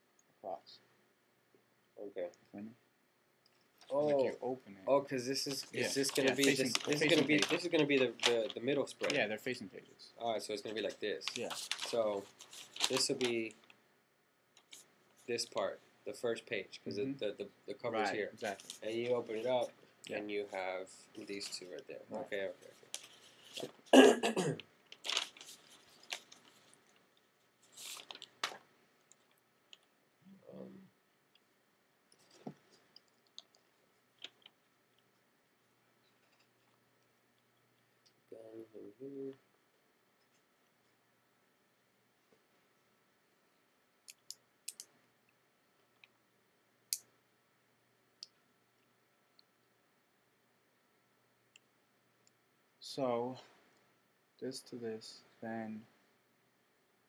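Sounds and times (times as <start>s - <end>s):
person coughing: 24.0s - 24.6s
sharp irregular clicks: 44.0s - 44.9s.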